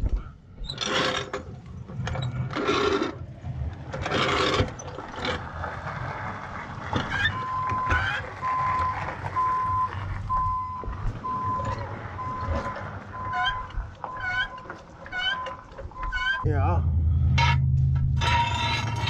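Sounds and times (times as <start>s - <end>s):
reversing alarm beeping: 7.3s - 18.5s.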